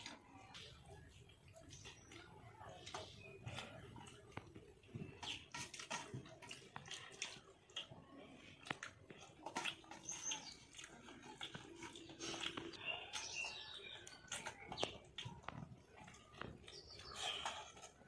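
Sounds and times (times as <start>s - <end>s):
chewing and lip smacks: 0.0s - 18.0s
fingers squelching through food: 0.0s - 18.0s
faint bird chirp: 11.8s - 18.0s.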